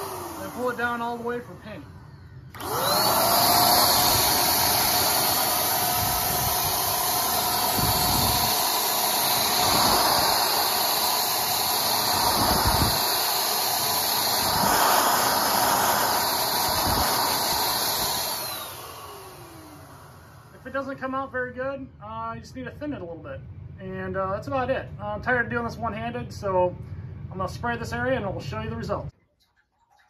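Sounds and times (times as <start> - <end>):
paint sprayer motor whine: 0.0 - 20.7.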